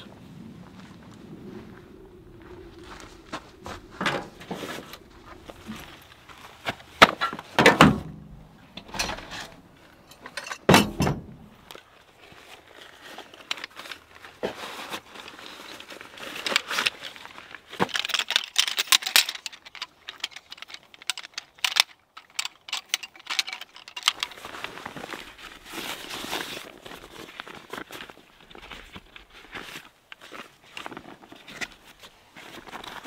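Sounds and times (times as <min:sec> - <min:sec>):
crinkly rustling with clicks: 0:11.6 - 0:33.0.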